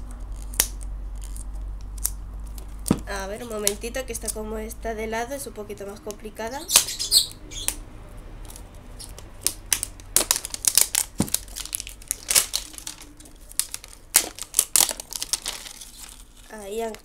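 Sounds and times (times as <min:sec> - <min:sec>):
paper wrapping crinkling and tearing: 0:08.4 - 0:17.0.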